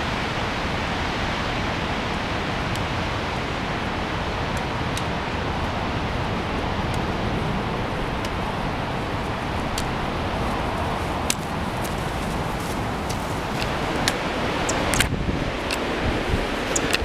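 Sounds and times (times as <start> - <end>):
wind buffeting microphone: 0.0 - 17.0
trekking poles clicking: 9.6 - 17.0
footsteps: 10.4 - 14.2.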